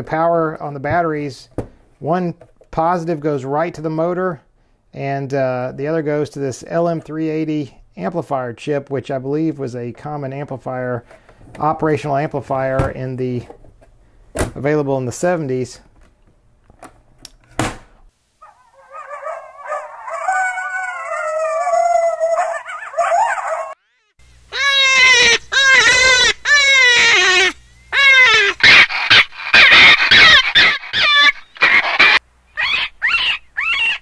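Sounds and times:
drawn-out pitched animal call: 18.4s - 34.0s
high-pitched rabbit distress cries: 18.4s - 34.0s.

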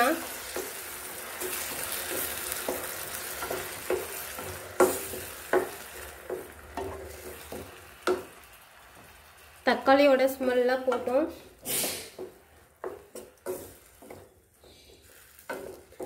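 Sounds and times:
vegetables sizzling in oil: 0.0s - 16.0s
wooden spatula scraping pan: 10.8s - 16.0s.

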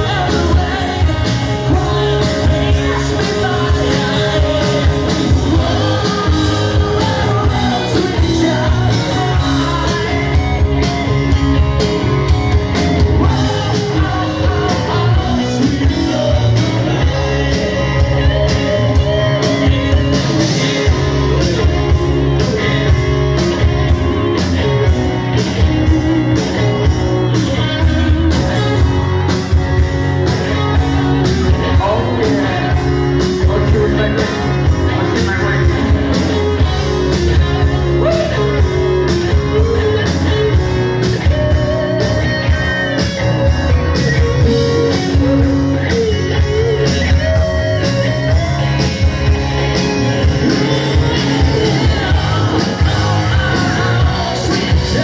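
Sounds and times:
bass guitar: 0.0s - 55.0s
drum kit: 0.0s - 55.0s
electric guitars: 0.0s - 55.0s.

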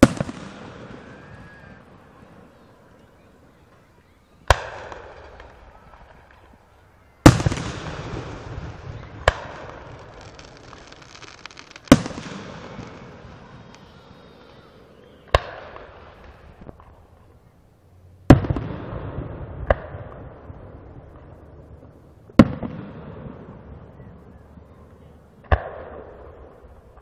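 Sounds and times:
fireworks booming: 0.0s - 17.4s, 18.3s - 24.4s.

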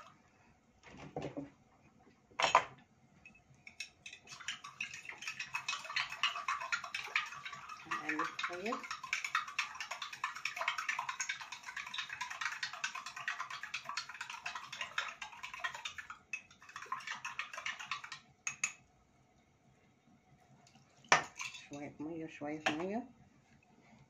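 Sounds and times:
water pouring: 4.1s - 18.3s, 20.7s - 21.8s.

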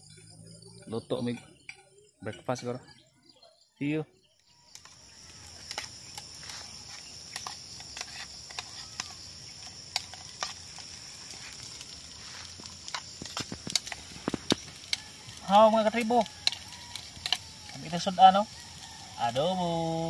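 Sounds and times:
meat sizzling in a pan: 4.5s - 20.0s.

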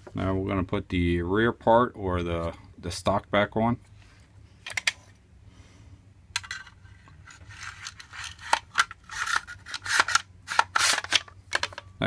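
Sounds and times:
plastic and metal scraping: 6.4s - 11.9s.

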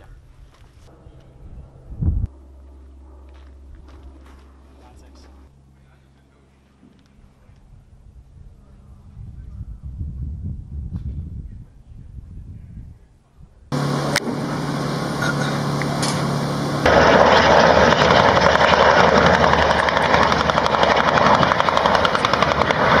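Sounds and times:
helicopter rotor beat: 0.9s - 9.4s, 13.7s - 23.0s
helicopter engine hum: 0.9s - 10.8s, 13.7s - 23.0s.

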